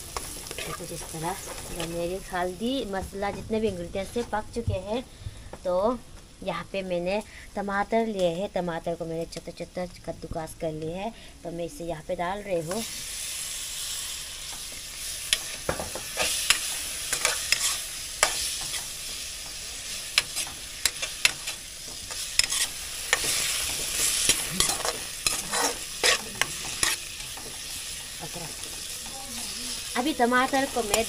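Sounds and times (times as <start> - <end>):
tomatoes sizzling in hot oil: 0.0 - 31.0
spatula scraping a pan: 14.6 - 31.0.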